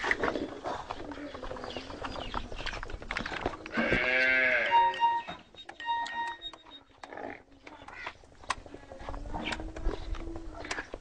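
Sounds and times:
livestock animal bleating: 0:03.7 - 0:05.4
short electronic beeps: 0:04.5 - 0:06.9.

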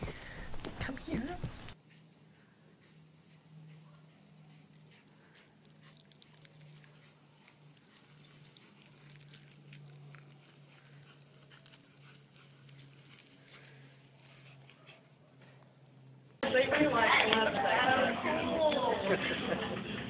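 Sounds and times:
crackling on grass: 0:00.0 - 0:16.4
dog breathing: 0:01.7 - 0:16.4.

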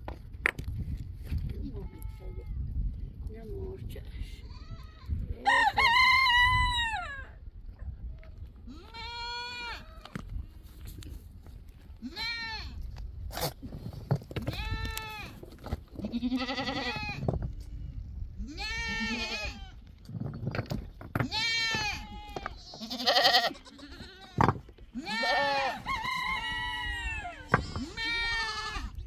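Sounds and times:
goat kids bleating: 0:08.7 - 0:10.2, 0:12.0 - 0:12.8, 0:14.5 - 0:15.4, 0:16.0 - 0:17.8, 0:18.4 - 0:19.8, 0:21.2 - 0:29.0.

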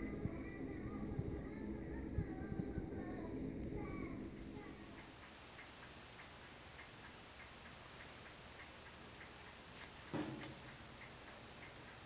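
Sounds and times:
faint regular ticking: 0:03.6 - 0:12.0.

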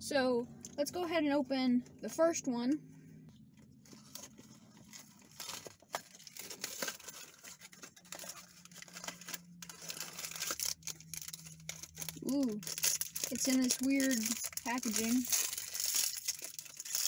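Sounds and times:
foil wrapper tearing and crinkling: 0:03.8 - 0:17.0.

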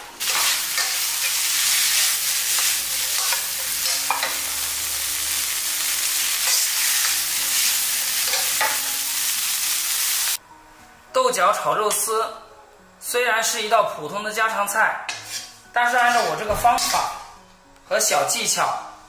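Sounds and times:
food sizzling in a wok: 0:00.0 - 0:10.4, 0:15.1 - 0:17.4
spatula scraping a pan: 0:06.4 - 0:08.5, 0:15.1 - 0:17.4.

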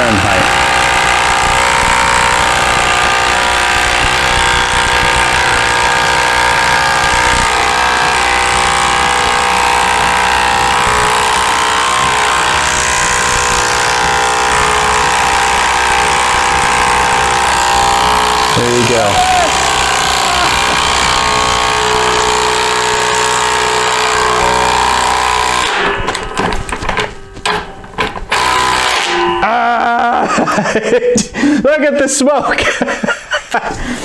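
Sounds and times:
impact driver hammering: 0:00.0 - 0:29.5.

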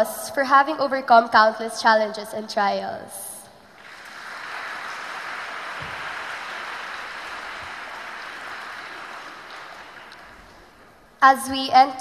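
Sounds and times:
large audience applauding: 0:03.8 - 0:10.8.

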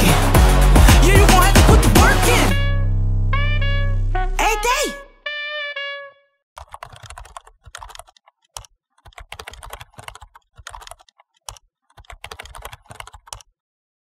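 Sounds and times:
typing on computer keyboard: 0:06.6 - 0:13.5.

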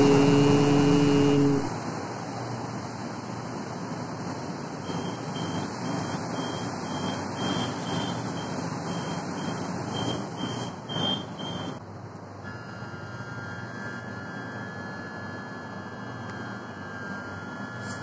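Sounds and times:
train door warning beeps: 0:00.0 - 0:01.7, 0:04.9 - 0:11.8.

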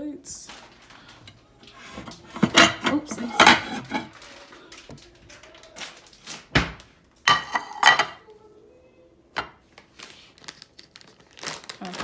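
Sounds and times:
plates clattering: 0:01.2 - 0:04.3, 0:06.6 - 0:08.2.

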